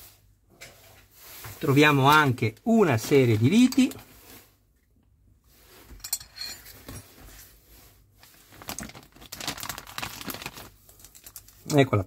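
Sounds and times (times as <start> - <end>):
plastic bag crinkling: 8.2 - 12.0.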